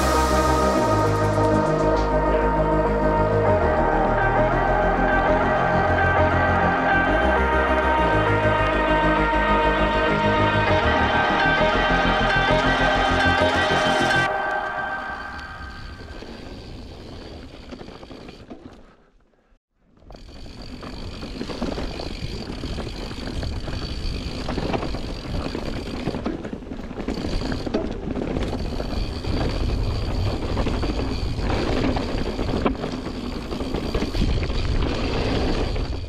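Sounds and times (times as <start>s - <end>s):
bike tyre noise: 0.0s - 36.0s
bike rattling: 15.6s - 36.0s
wind rumbling on microphone: 20.5s - 36.0s.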